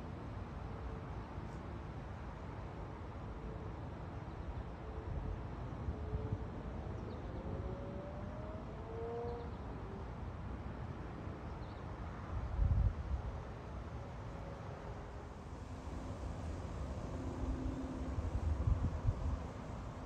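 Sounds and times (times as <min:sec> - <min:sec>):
distant engine hum: 0:05.8 - 0:11.7, 0:13.1 - 0:20.0
wind rumble on microphone: 0:12.4 - 0:13.4, 0:15.9 - 0:20.0.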